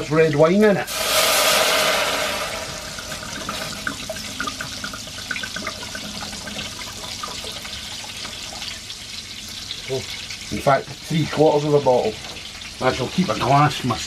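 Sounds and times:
wine hissing on hot metal: 0.8s - 13.0s
liquid pouring: 0.9s - 10.6s.

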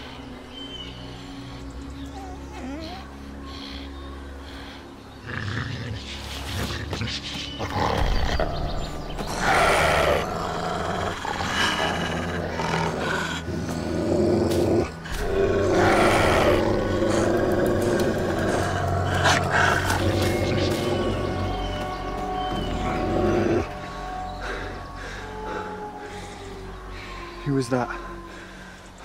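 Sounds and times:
wolf snarling and growling: 5.2s - 23.8s.

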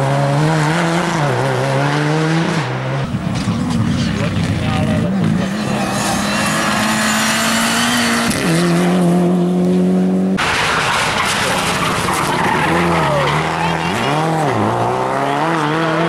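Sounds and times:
rally car engines revving: 0.0s - 16.0s.

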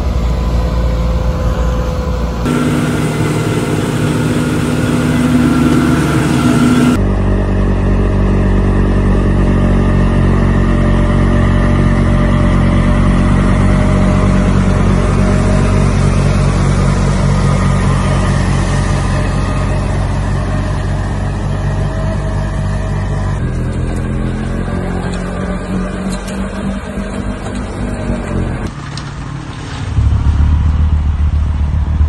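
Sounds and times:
snowblower noise: 0.0s - 29.8s
tractor engine running: 0.0s - 32.0s.

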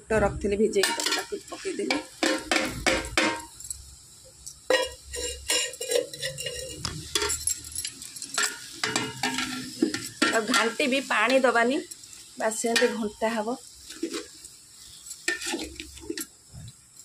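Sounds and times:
metal ladle scraping pot: 4.7s - 13.1s, 13.8s - 16.3s.

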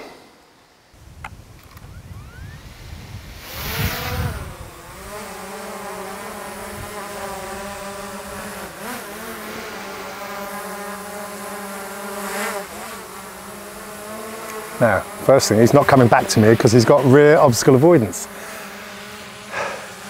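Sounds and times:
rush of air: 0.0s - 5.0s
drone propellers buzzing: 0.0s - 20.0s.

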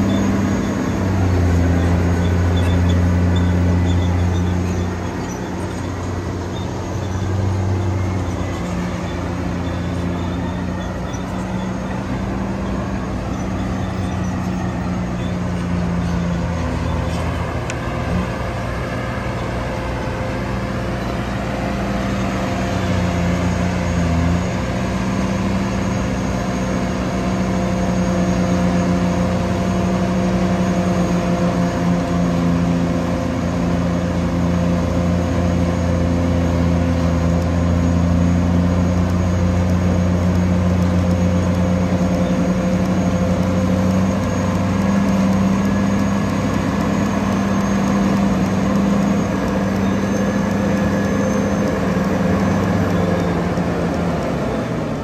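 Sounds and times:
bulldozer diesel engine droning: 0.0s - 55.0s.

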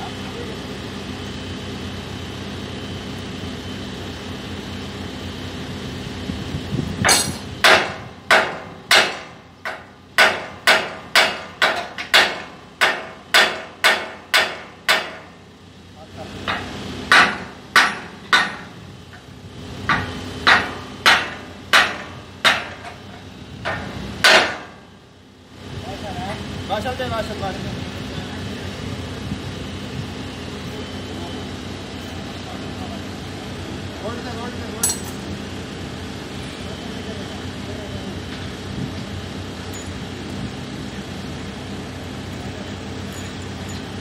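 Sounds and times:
hammer striking steel: 7.0s - 15.3s, 16.4s - 18.7s, 19.9s - 24.8s, 34.8s - 35.2s.

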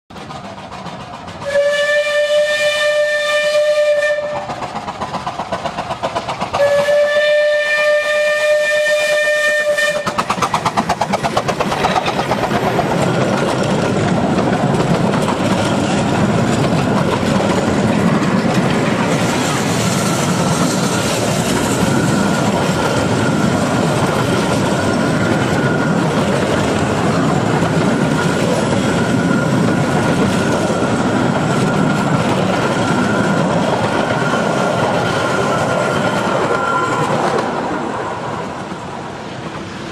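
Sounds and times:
train clattering over rail joints: 0.1s - 8.6s, 9.6s - 39.9s
steam locomotive whistle: 1.4s - 4.7s, 6.6s - 10.5s, 34.1s - 37.6s
faint wheel squeal: 34.1s - 37.6s.

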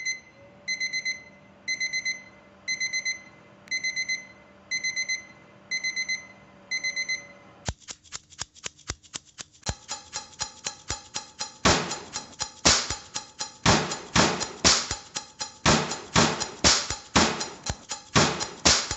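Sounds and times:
kitchen timer beeps: 0.0s - 7.4s, 9.7s - 18.9s
metal tins clacking: 9.0s - 18.9s.

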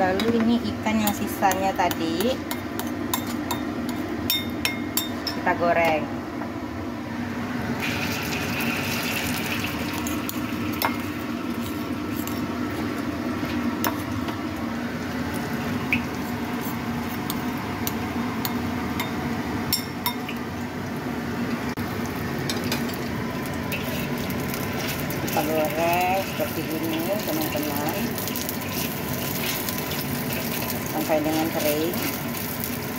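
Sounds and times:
fish paste sizzling in oil: 7.8s - 18.9s, 21.8s - 32.9s.

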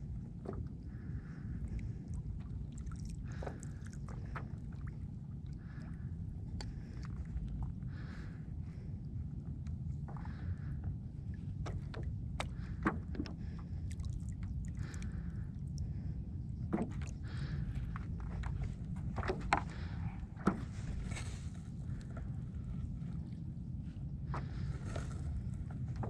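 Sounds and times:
steady low rumble: 0.0s - 26.0s
light water splashes: 0.3s - 8.3s, 11.3s - 23.5s.

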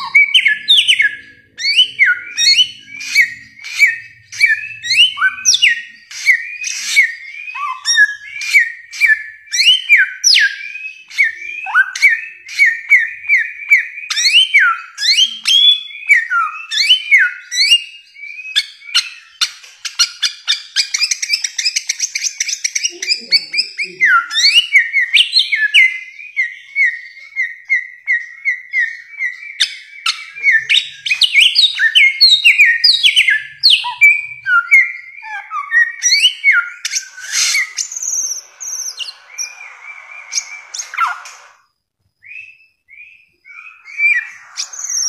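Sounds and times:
bird rapid twittering: 0.0s - 13.4s, 36.0s - 41.6s, 42.3s - 45.0s
bird whistling song: 0.0s - 45.0s.

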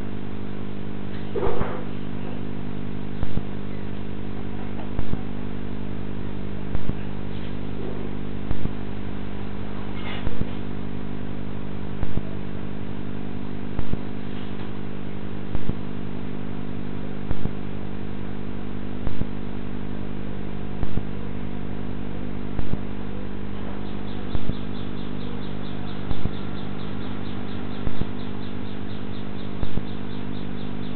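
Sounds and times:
steady electrical hum: 0.0s - 30.9s
sharp clicks: 29.5s - 30.0s.

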